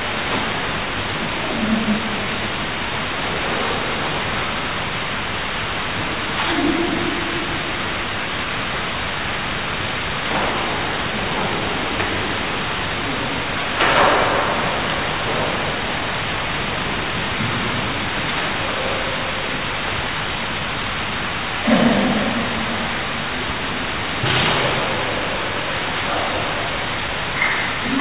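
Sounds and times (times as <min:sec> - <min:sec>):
loud steady hiss: 0:00.0 - 0:28.0.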